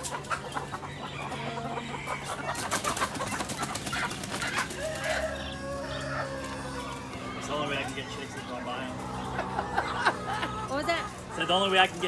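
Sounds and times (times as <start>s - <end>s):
hens clucking: 0.0s - 12.0s
wings flapping and rustling: 2.5s - 5.4s.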